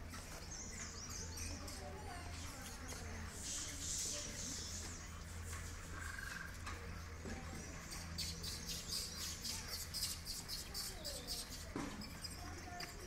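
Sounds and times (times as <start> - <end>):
low outdoor ambient hum: 0.0 - 13.0
high-pitched bird chirping: 7.8 - 12.9.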